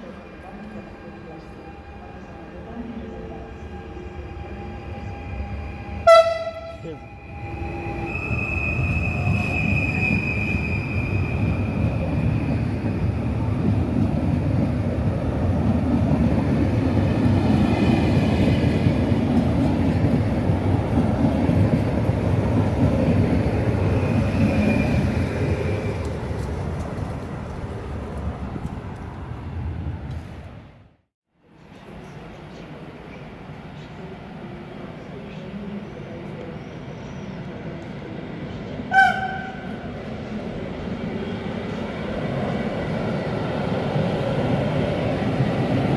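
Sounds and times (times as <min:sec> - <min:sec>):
train wheels rumbling: 0:00.1 - 0:30.6
high-pitched wheel squeals: 0:04.9 - 0:12.7
train horn: 0:05.9 - 0:07.1, 0:38.9 - 0:39.8.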